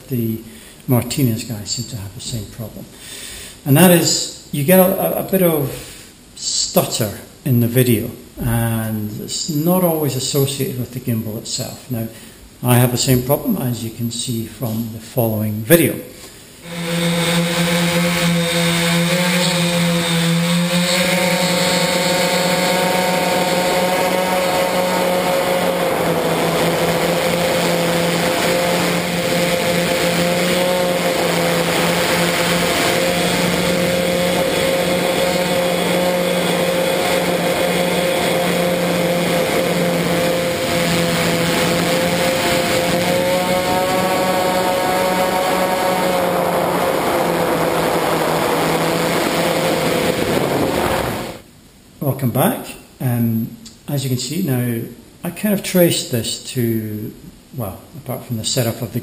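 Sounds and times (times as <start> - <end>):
quadcopter motors droning: 16.6 - 51.4.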